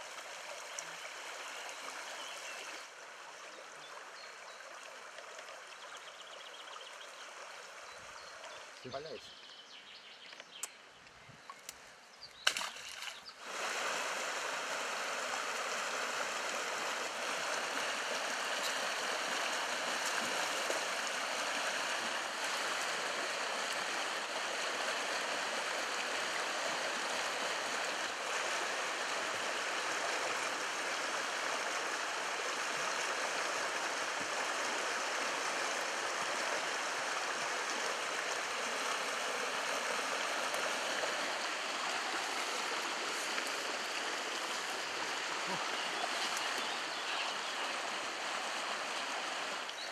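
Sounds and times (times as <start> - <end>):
river water rushing: 12.5 - 49.9.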